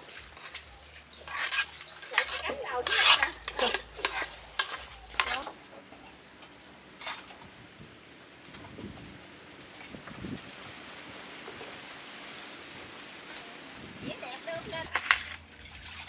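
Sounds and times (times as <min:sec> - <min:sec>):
spoon scraping in a pot: 0:00.0 - 0:05.6.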